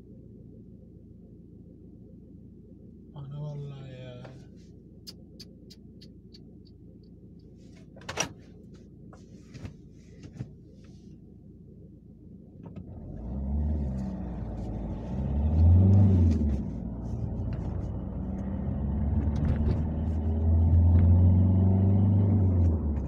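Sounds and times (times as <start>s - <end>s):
car engine idling: 0.0s - 12.8s
car engine revving: 12.8s - 23.0s.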